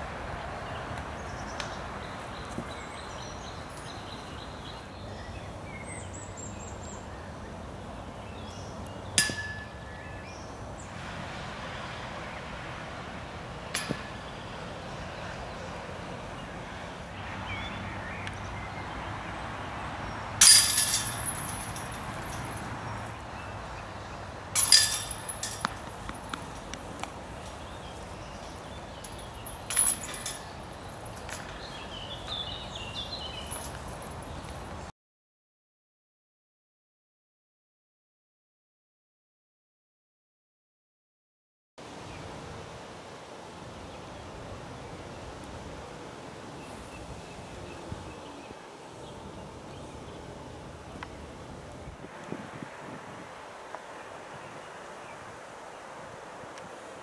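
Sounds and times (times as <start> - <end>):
discs crashing into metal chains: 20.4 - 22.4.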